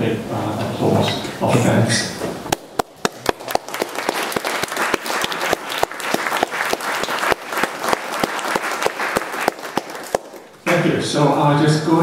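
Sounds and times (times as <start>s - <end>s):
audience applauding: 2.5s - 10.9s
loud claps close to microphone: 2.5s - 10.9s.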